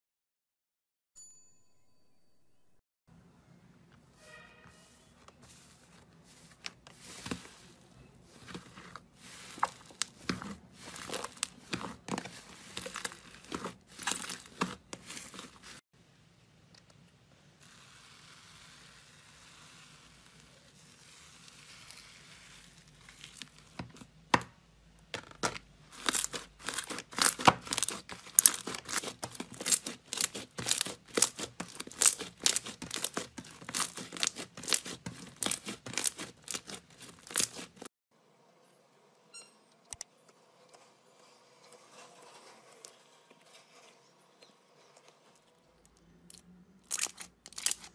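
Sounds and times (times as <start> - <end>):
slime crackling and popping: 26.0 - 37.9, 46.9 - 47.9.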